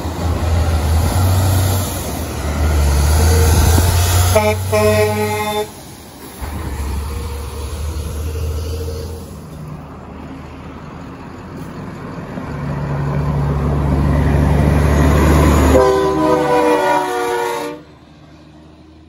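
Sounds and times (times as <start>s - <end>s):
truck engine and tyres: 0.0s - 19.0s
truck air horn blast: 3.2s - 5.8s, 15.5s - 18.0s.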